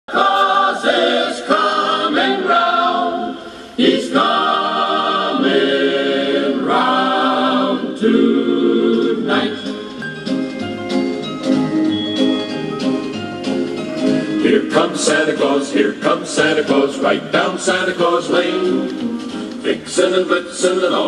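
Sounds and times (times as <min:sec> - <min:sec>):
choir singing a cappella: 0:00.1 - 0:09.8, 0:14.4 - 0:21.0.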